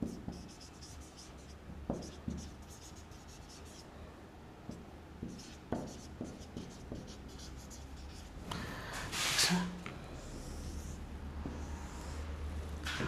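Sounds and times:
marker scratching on whiteboard: 0.0s - 3.9s, 4.7s - 8.4s, 10.2s - 12.3s.

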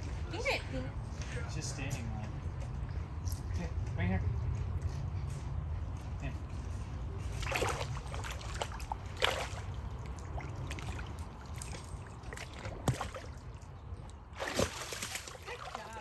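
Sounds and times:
water splashing: 7.3s - 16.0s.

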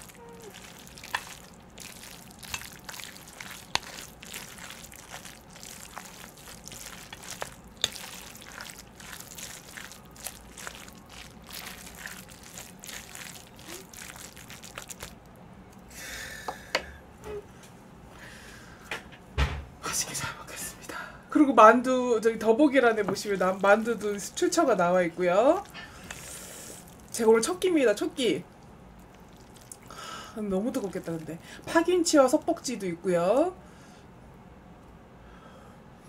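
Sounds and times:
noodles squelching with chopsticks: 0.0s - 15.3s, 22.5s - 27.5s, 28.5s - 29.9s.

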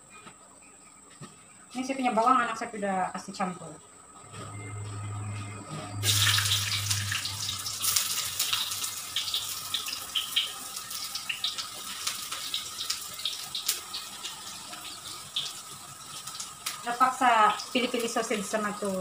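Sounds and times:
garlic and onion sizzling in oil: 5.9s - 19.0s.

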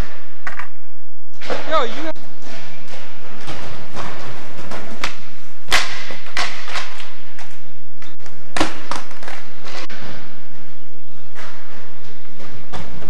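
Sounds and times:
skateboard clacking on hard floor: 2.5s - 10.2s.

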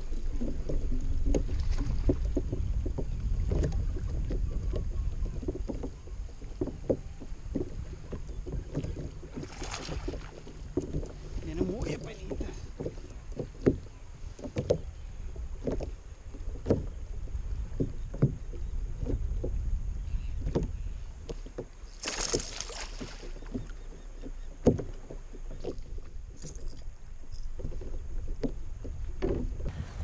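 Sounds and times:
wind rumbling on microphone: 0.0s - 23.7s, 24.6s - 30.0s
gear knocking against kayak hull: 0.2s - 19.7s, 20.3s - 22.4s, 23.2s - 26.8s, 27.4s - 29.7s
short hissing rush: 29.7s - 30.0s.

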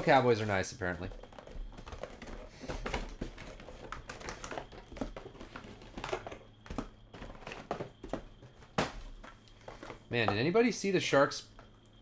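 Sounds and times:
plastic packs crinkling: 1.2s - 10.0s.

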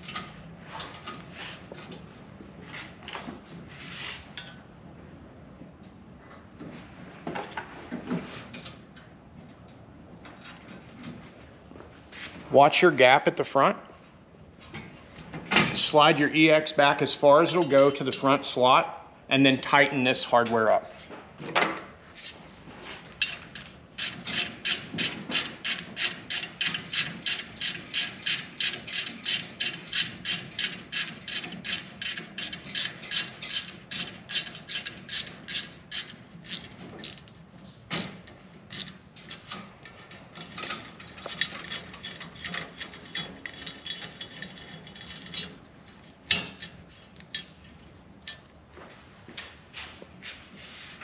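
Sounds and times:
ratchet wrench clicking: 24.0s - 37.3s.

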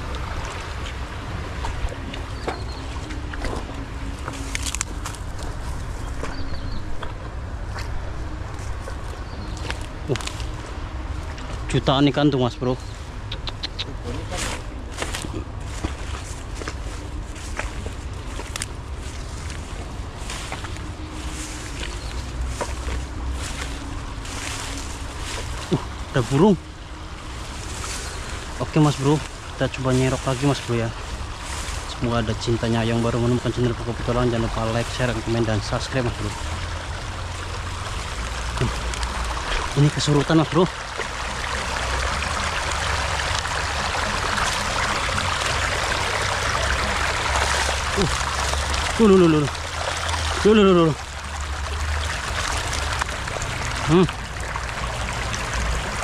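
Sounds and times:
wind rumbling on microphone: 0.0s - 12.0s
stream running over stones: 0.0s - 56.0s
footsteps through weeds and grass: 14.3s - 26.5s, 27.2s - 40.2s.

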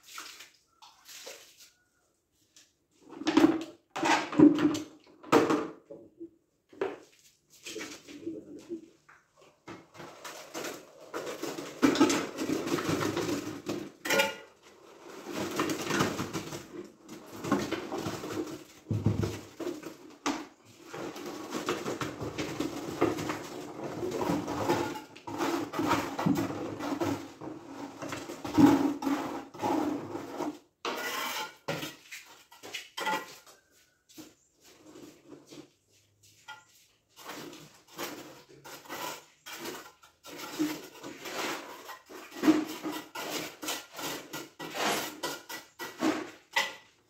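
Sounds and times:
rubble scraping and clattering: 9.7s - 33.7s, 36.4s - 47.0s.

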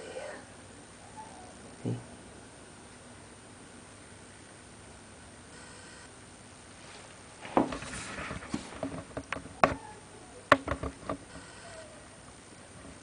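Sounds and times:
brief rustle: 6.8s - 9.8s.

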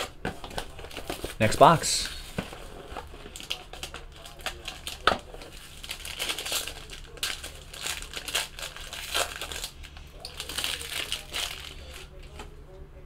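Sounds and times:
plastic wrapper crinkling: 0.0s - 12.5s.

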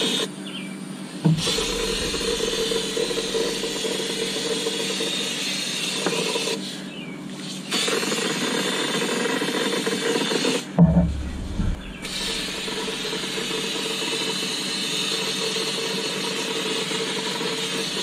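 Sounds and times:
low hum: 1.2s - 4.6s, 10.8s - 13.5s
low knocks: 1.3s - 4.3s, 10.8s - 13.0s
spray gun hissing: 1.3s - 6.6s, 11.0s - 14.0s.

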